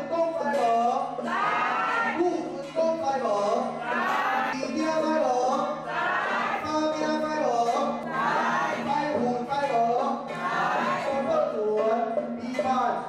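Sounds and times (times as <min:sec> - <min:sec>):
man chanting melodically: 0:06.6 - 0:08.0, 0:08.8 - 0:13.0.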